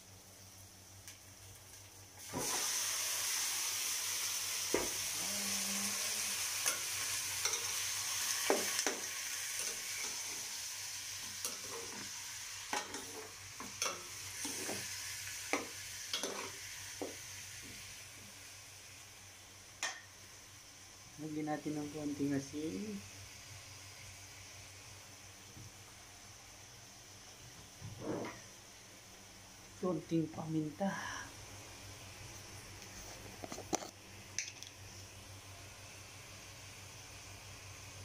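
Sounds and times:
chicken sizzling in oil: 0:00.0 - 0:27.8
stirring knocks and scrapes: 0:12.7 - 0:14.9, 0:27.8 - 0:28.4.

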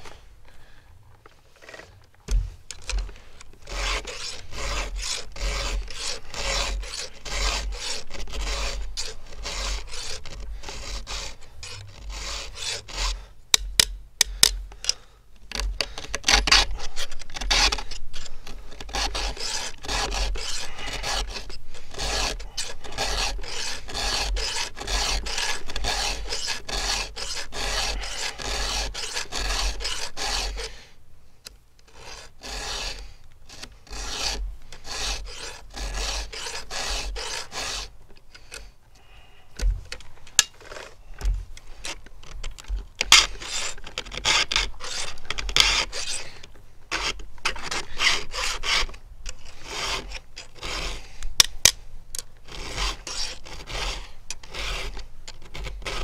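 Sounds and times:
file rasping on saw chain: 0:02.8 - 0:13.3, 0:16.2 - 0:30.8, 0:31.9 - 0:38.7, 0:43.0 - 0:51.1, 0:52.5 - 0:56.0.

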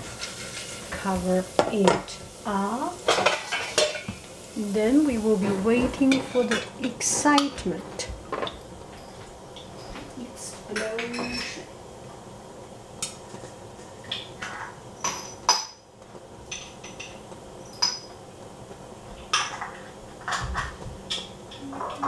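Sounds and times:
oil hissing: 0:00.0 - 0:09.8
popcorn popping in covered pan: 0:00.0 - 0:11.9, 0:12.6 - 0:22.0.

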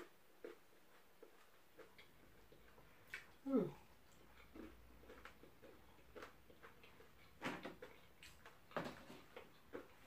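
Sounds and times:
person chewing crunchy food: 0:00.0 - 0:10.0.

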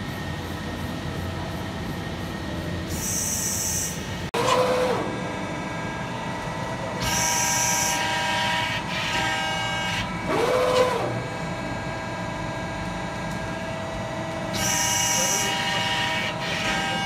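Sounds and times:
servo whine: 0:00.0 - 0:06.3, 0:07.0 - 0:11.4
machine steady hum: 0:00.0 - 0:17.0.

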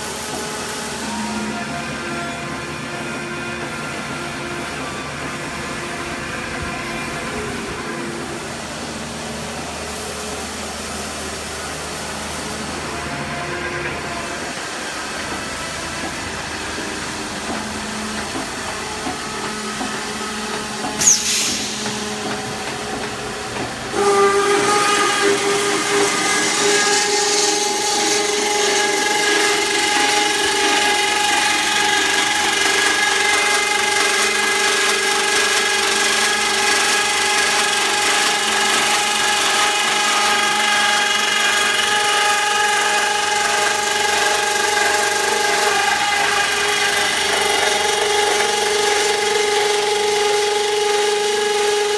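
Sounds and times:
circular saw cutting steel: 0:00.0 - 0:51.9
roll forming line running: 0:00.0 - 0:51.9
brief sharp noise: 0:21.0 - 0:22.1.

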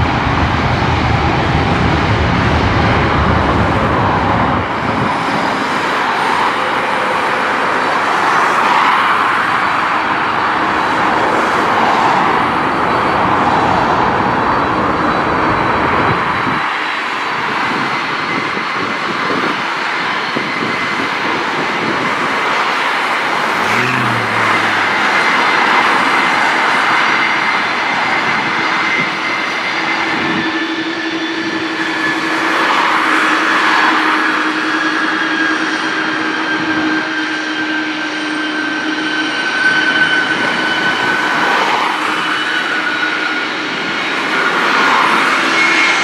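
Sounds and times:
highway traffic passing: 0:00.0 - 0:29.6, 0:40.1 - 0:46.0
jet aircraft noise: 0:00.0 - 0:46.0
heavy vehicle engine hum: 0:20.0 - 0:28.7.

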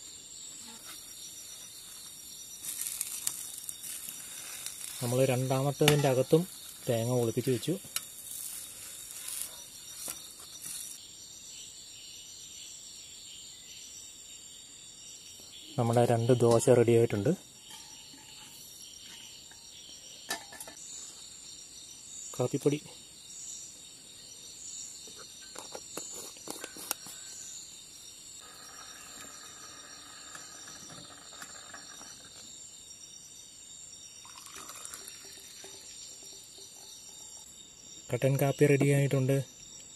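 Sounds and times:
soft hiss: 0:00.0 - 0:11.0
crickets chirping: 0:00.0 - 0:39.9
faint pan sizzle: 0:01.4 - 0:11.0.

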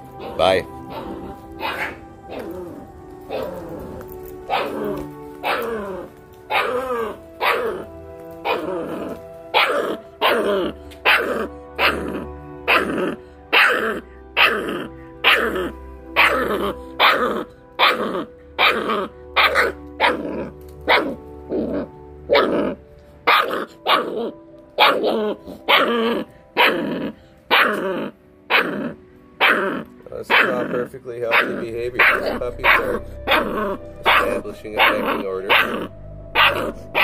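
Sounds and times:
background music: 0:00.0 - 0:37.0
small dog yapping: 0:00.2 - 0:02.5, 0:04.5 - 0:05.9, 0:06.5 - 0:07.8, 0:09.6 - 0:12.1, 0:13.5 - 0:15.5, 0:16.2 - 0:21.2, 0:23.3 - 0:26.9, 0:27.5 - 0:28.8, 0:31.3 - 0:34.2.

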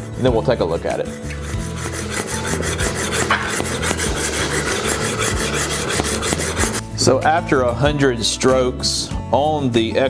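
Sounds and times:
plane iron rasping on sharpening stone: 0:00.0 - 0:06.8.

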